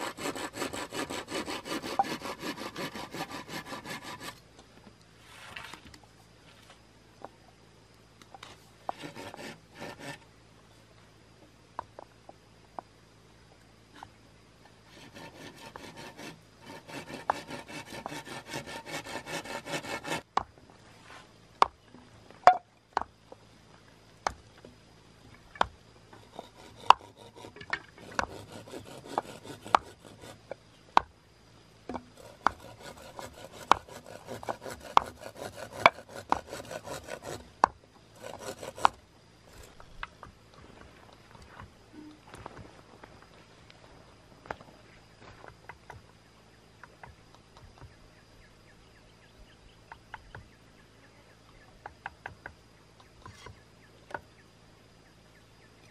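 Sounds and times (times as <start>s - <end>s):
scraping or sawing bamboo: 0.0s - 4.4s, 5.2s - 5.9s, 8.4s - 10.3s, 14.8s - 20.3s, 26.2s - 30.6s, 31.9s - 39.8s.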